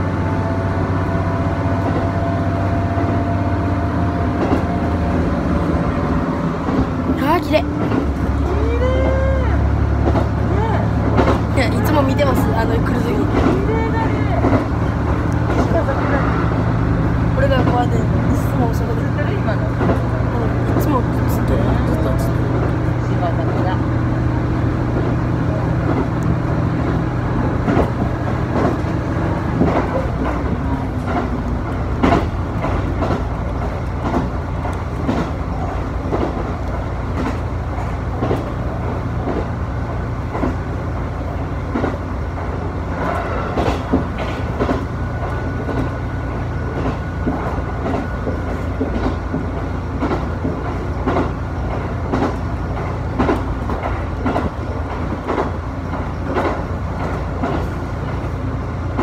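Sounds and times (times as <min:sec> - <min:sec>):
railcar engine rumble: 0:00.0 - 0:59.0
wheels clicking over rail joints: 0:06.6 - 0:16.0, 0:25.8 - 0:59.0.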